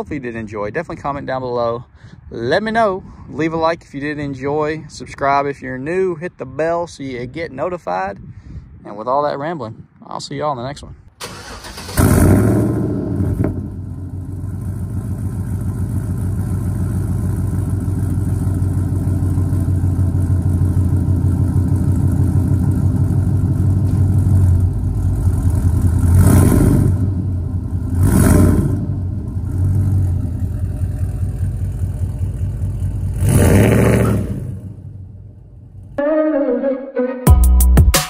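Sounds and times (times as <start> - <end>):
engine throttle blips: 11.2 - 36.2
truck engine starting and idling: 11.2 - 36.4.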